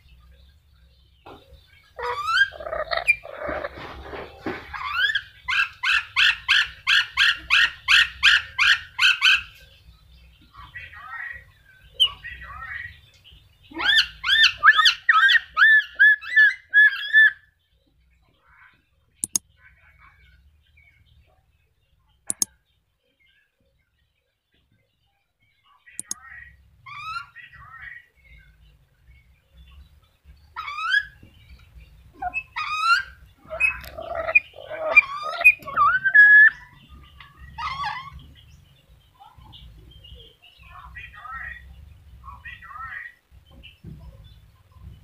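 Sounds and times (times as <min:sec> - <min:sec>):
parrot shrill calls: 0:02.0 - 0:03.4, 0:30.6 - 0:31.2, 0:32.2 - 0:36.7, 0:37.5 - 0:38.2
sharp clicks: 0:19.2 - 0:19.4, 0:22.3 - 0:22.5, 0:26.0 - 0:26.2.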